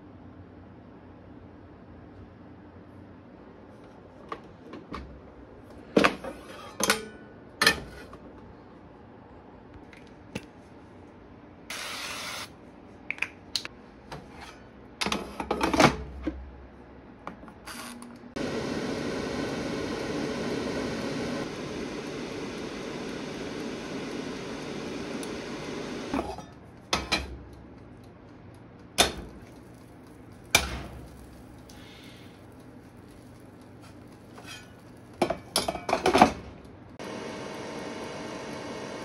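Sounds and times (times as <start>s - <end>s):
air fryer fan whirring: 18.3s - 39.0s.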